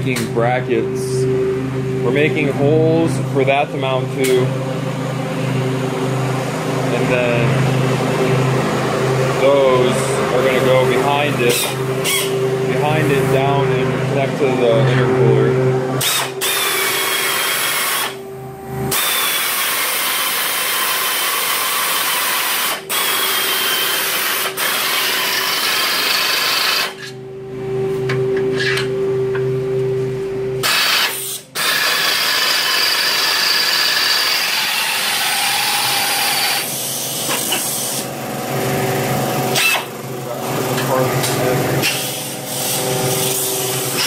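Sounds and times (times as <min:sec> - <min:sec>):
power drill boring through steel: 0:16.0 - 0:18.2, 0:18.9 - 0:27.1, 0:30.6 - 0:38.0.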